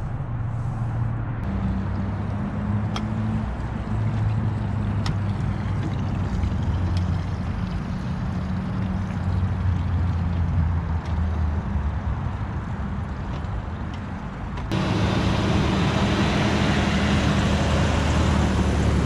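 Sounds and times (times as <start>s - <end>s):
outboard motor idling: 3.4s - 13.2s, 14.7s - 19.0s.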